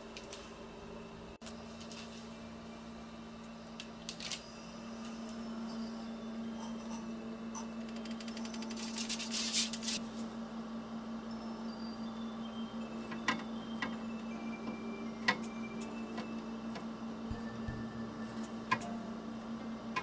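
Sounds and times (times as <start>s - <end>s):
oven electric hum: 0.0s - 20.0s
foil crinkling: 8.7s - 10.0s.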